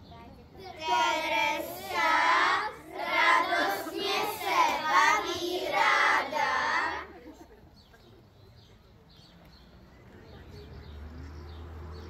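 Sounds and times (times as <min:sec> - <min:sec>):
children singing together: 0:00.7 - 0:07.1.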